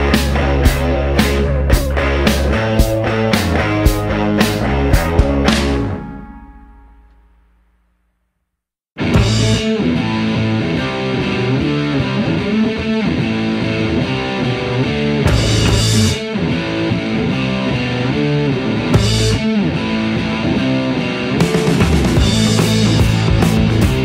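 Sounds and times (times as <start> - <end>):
rock music with electric guitar: 0.0 - 7.3, 9.0 - 24.0.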